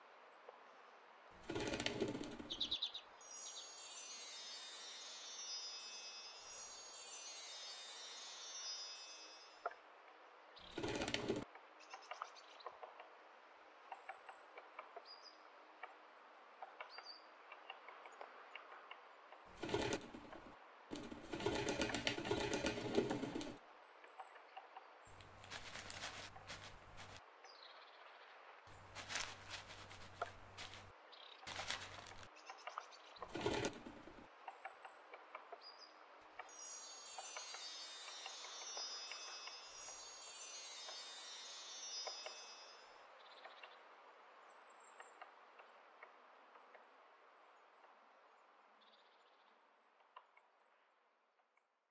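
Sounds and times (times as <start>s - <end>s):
soft steady hiss: 2.9s - 10.7s, 35.6s - 51.2s
chimes ringing: 3.2s - 9.6s, 36.5s - 43.1s.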